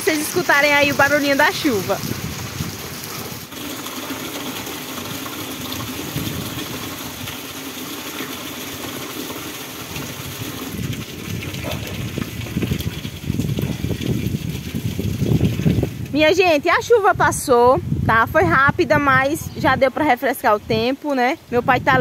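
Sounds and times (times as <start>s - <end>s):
steady rain: 0.0s - 16.2s
rain falling on roof gutter: 0.0s - 16.4s
water gushing into plastic tank: 0.0s - 17.0s.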